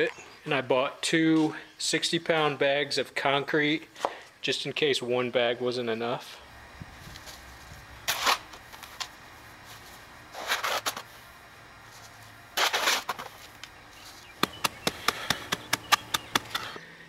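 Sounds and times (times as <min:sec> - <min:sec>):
shovel scraping concrete: 0:08.1 - 0:09.0, 0:10.3 - 0:11.2, 0:11.9 - 0:13.6.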